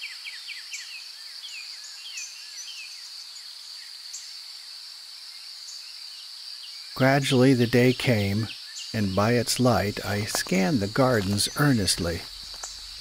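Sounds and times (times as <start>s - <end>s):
crickets droning: 0.0s - 13.0s
birds chirping: 6.6s - 13.0s.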